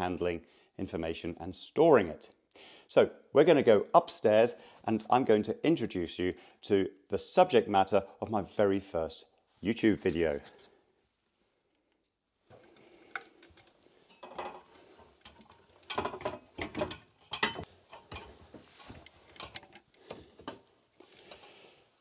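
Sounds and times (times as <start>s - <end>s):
clanks on aluminium ladder: 15.3s - 19.8s.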